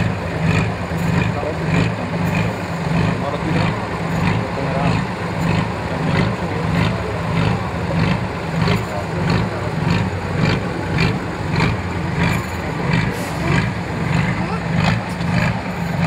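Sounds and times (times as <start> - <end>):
diesel truck engine at low revs: 0.0 - 16.0.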